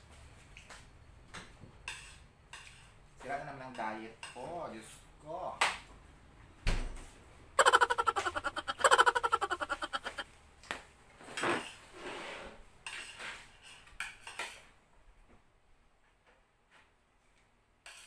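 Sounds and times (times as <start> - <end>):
cutlery clinking on plates: 1.8 - 3.0, 3.7 - 4.5, 12.8 - 14.7.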